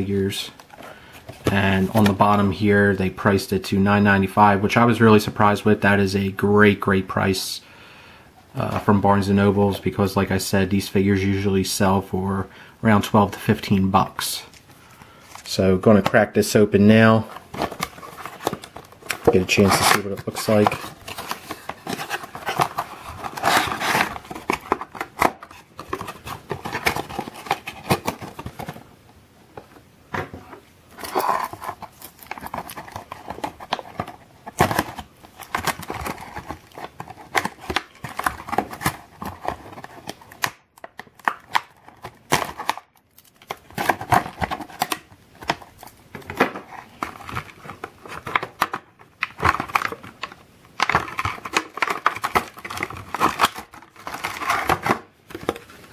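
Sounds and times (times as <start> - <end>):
plastic packaging crinkling: 17.1 - 28.8, 30.9 - 55.9.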